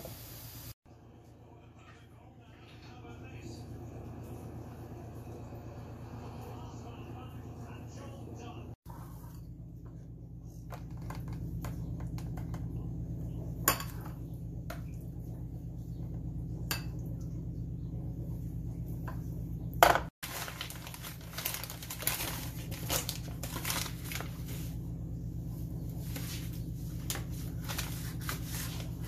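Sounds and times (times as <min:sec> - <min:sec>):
paper crinkling: 0:20.2 - 0:24.8, 0:26.0 - 0:29.0.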